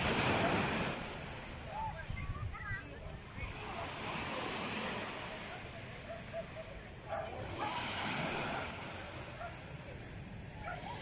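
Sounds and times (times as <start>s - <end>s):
waves washing up pebble beach: 0.0s - 1.6s, 7.4s - 9.3s.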